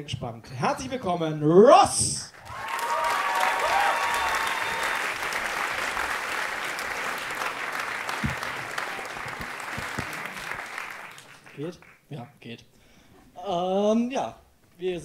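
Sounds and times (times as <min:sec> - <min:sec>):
audience applauding: 0:02.4 - 0:12.0
microphone handling knocks: 0:08.2 - 0:08.5.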